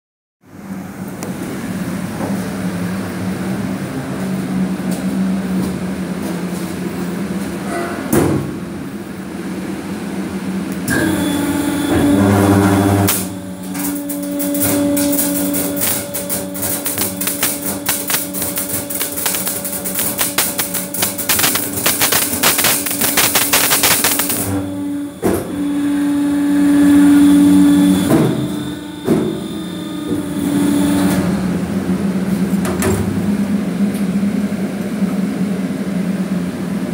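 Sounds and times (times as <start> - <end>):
electrical hum: 8.4 - 36.9
crackle of arcing flashes: 13.1 - 24.7.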